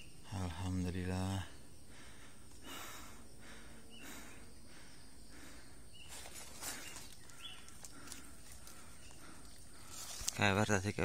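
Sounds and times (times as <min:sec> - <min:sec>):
bird chirps: 0:00.0 - 0:00.7, 0:03.8 - 0:11.0
high insect drone: 0:00.0 - 0:11.0
rustling dry leaves: 0:06.1 - 0:10.5.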